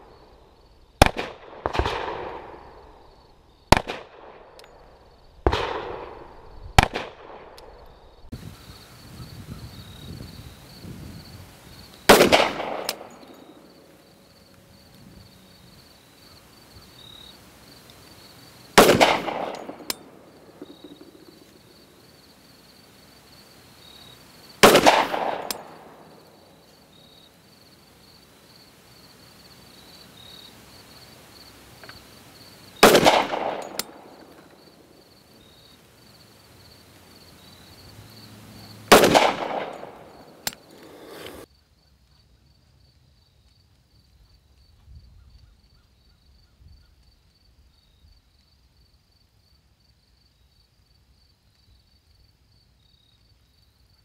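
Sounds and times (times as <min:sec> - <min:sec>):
pistol shots echoing: 0:01.0 - 0:02.8, 0:03.7 - 0:04.6, 0:05.5 - 0:07.7, 0:12.1 - 0:13.7, 0:18.8 - 0:21.4, 0:24.6 - 0:26.2, 0:32.8 - 0:34.6, 0:38.9 - 0:40.6.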